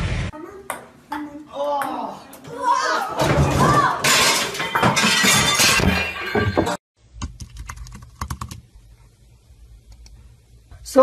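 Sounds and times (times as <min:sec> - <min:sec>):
crash with glass breaking: 0:03.2 - 0:06.8
keyboard typing: 0:07.2 - 0:08.6.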